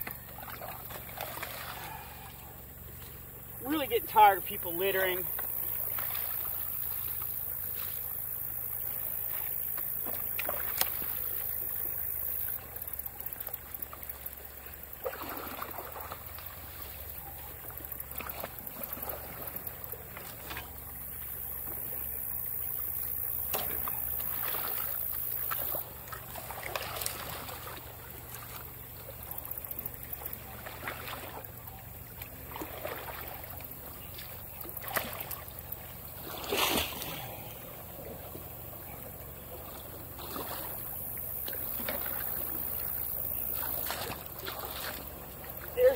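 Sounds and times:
rake splashing and scraping: 0.0s - 37.7s, 39.6s - 45.9s
trickling water: 0.0s - 45.9s.

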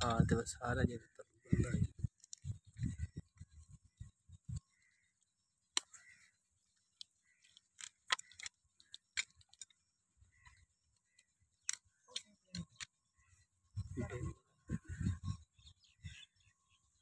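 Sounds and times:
hoof nippers clicking and snapping: 7.0s - 9.8s.

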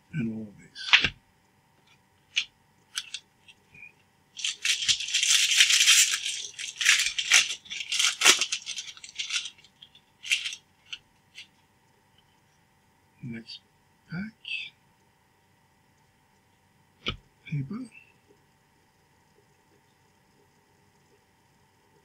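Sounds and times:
cards clicking: 0.9s - 1.2s, 2.3s - 3.2s, 4.4s - 11.5s
foil wrapper crinkling and tearing: 2.3s - 3.2s, 4.4s - 11.5s.

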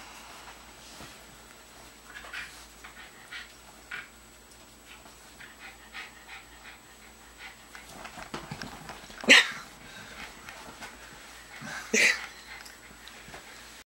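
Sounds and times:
dog panting: 1.8s - 9.1s, 10.0s - 13.8s.

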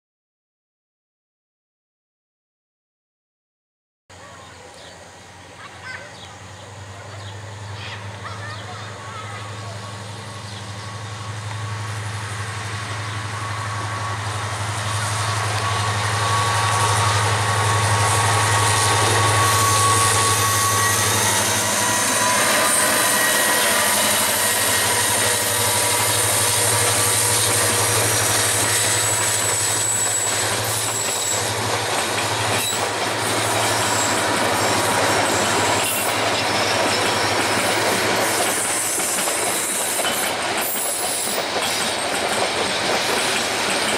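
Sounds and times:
diesel locomotive engine hum: 4.1s - 43.9s
wheels squealing: 5.7s - 43.9s
wheels clattering over rail joints: 20.7s - 43.9s.

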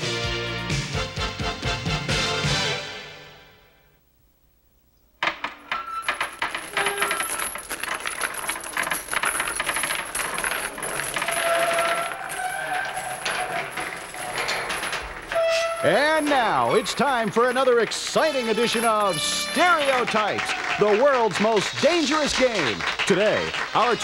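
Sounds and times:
metallic clattering and jingling: 5.4s - 21.7s.

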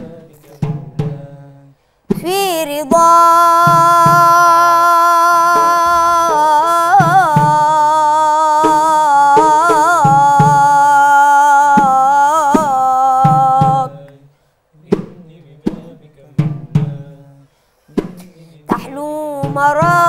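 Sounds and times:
hand drum beats: 0.0s - 1.3s, 2.1s - 14.1s, 14.9s - 17.2s, 18.0s - 20.0s
boy singing devotional melisma: 0.0s - 20.0s.

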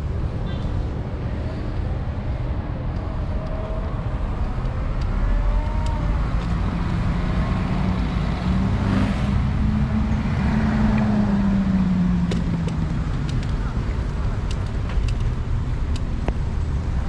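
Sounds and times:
road traffic rumble: 0.0s - 17.0s
vehicle passing close: 5.9s - 12.2s.

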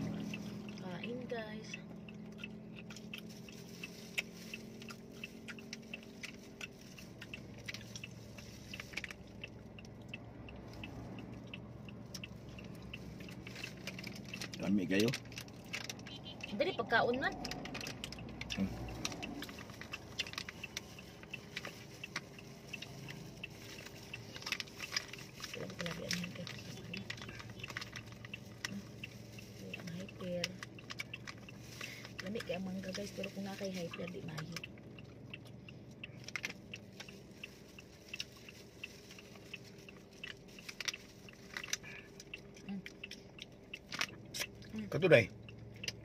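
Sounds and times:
people chewing with wet mouth smacks: 0.0s - 14.6s
low steady car cabin hum: 0.0s - 46.0s
plastic bags crinkling: 37.1s - 41.8s.

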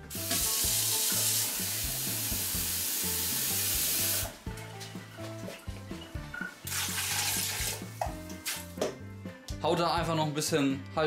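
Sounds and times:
food sizzling in a pot: 0.0s - 4.4s
background music: 0.0s - 11.0s.

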